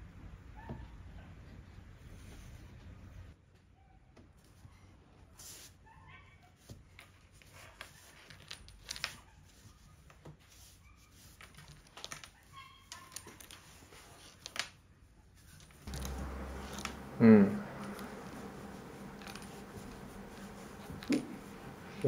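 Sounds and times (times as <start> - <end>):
steady low hum: 15.8 - 22.0.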